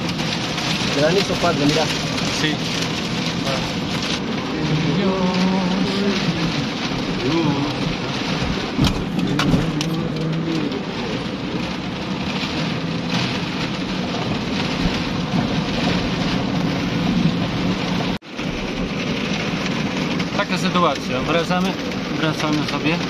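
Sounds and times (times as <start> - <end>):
engine humming: 0.0 - 23.0
rain and hail drumming on car roof: 0.0 - 23.0.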